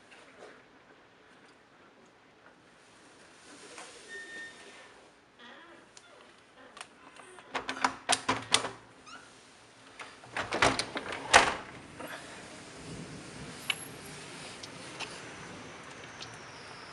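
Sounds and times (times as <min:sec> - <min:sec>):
window frame knocks and rattles: 0:10.3 - 0:11.9.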